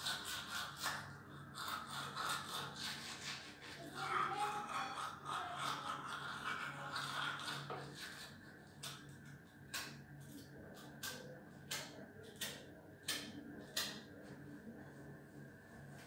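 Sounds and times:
toothbrush scrubbing teeth: 0.0s - 11.2s
faint steady hum: 0.0s - 16.0s.

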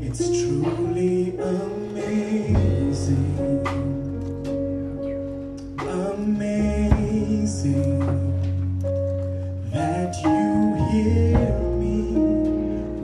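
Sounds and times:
man singing into a microphone: 0.0s - 4.5s, 5.7s - 8.8s, 9.6s - 13.0s
instrumental accompaniment: 0.0s - 13.0s.

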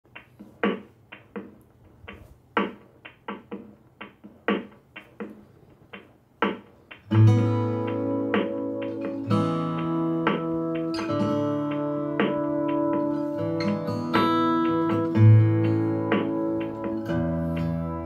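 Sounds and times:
acoustic guitar music over loudspeakers: 7.1s - 18.0s.

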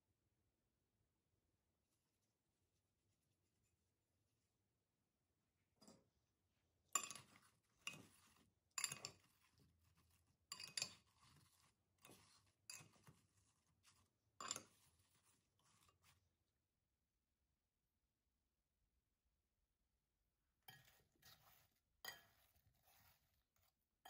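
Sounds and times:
metal spoon clinking on glass bowl: 6.9s - 8.1s, 8.8s - 9.5s, 10.5s - 11.1s.

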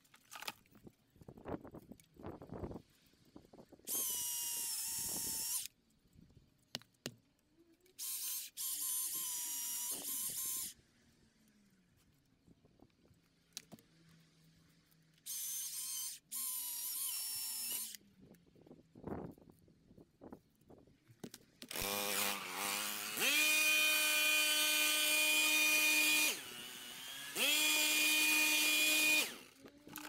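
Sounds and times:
battery chainsaw whine: 21.7s - 30.0s.

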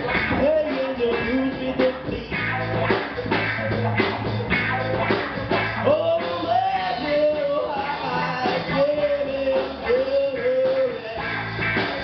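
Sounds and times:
bass note: 0.0s - 10.6s
drums: 0.0s - 12.0s
electric guitar: 0.0s - 12.0s
person singing: 0.2s - 2.5s, 5.8s - 12.0s.

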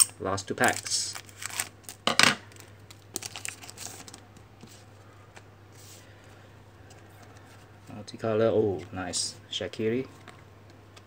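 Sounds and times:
foil wrapper crinkling: 0.0s - 4.2s.

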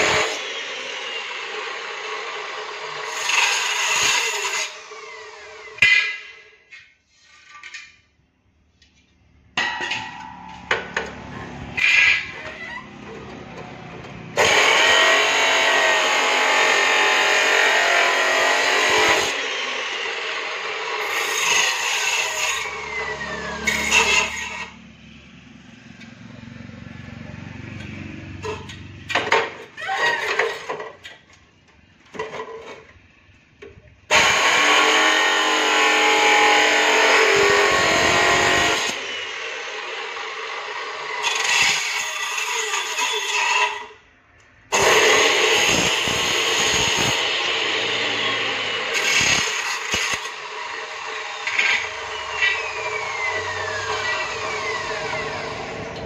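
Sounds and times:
cut-off saw grinding steel: 0.0s - 8.0s, 9.8s - 25.0s, 34.1s - 44.0s, 44.7s - 56.0s
saw motor humming: 10.8s - 21.0s, 44.7s - 56.0s.

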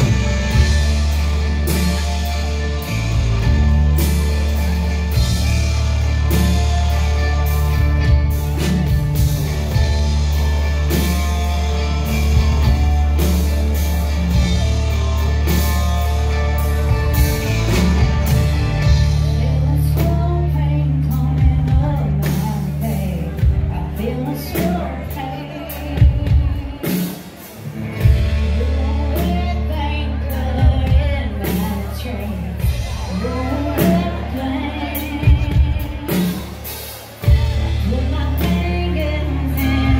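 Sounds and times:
country-rock band playing: 0.0s - 39.9s
woman singing: 18.8s - 27.3s, 28.3s - 39.9s.

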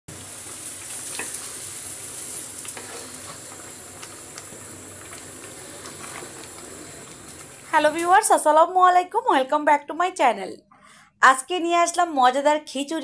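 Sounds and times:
food simmering in a pot: 0.1s - 8.3s.

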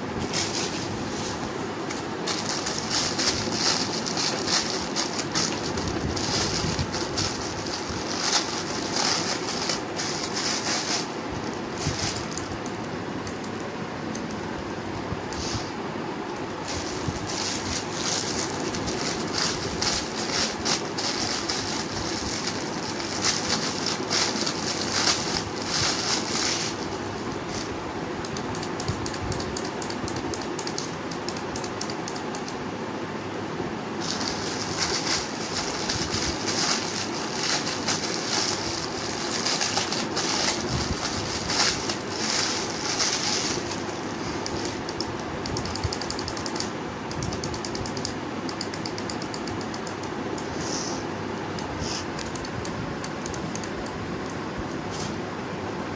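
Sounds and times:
steady low hum: 0.0s - 55.9s
plastic packaging crinkling: 0.2s - 12.5s, 16.6s - 27.8s, 34.0s - 45.0s.

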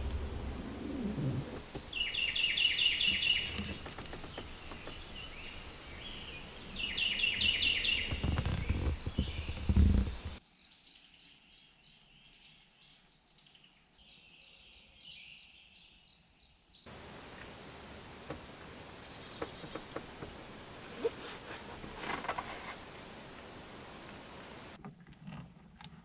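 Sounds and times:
faint steady hiss: 0.0s - 10.4s, 16.9s - 24.8s
low rumbling microphone noise: 0.0s - 10.4s, 16.9s - 24.8s
small birds chirping: 0.0s - 24.8s
small clicks: 3.0s - 5.2s.

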